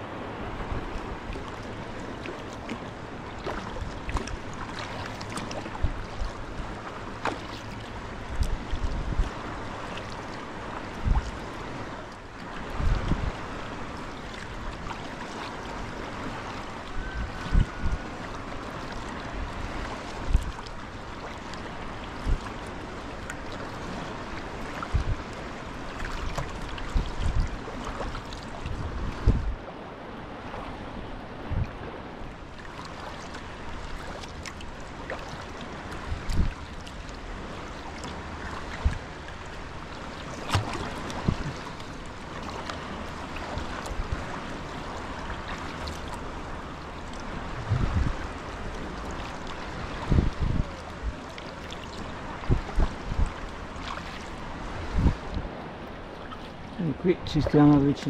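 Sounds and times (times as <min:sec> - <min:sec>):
water splashing around paddle: 0:00.0 - 0:58.0
low thumps: 0:47.6 - 0:48.2.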